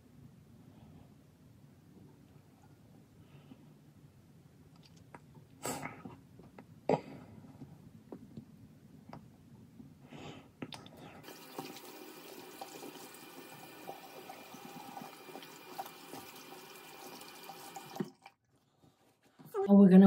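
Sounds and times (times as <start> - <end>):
faucet running into sink: 11.2 - 18.4.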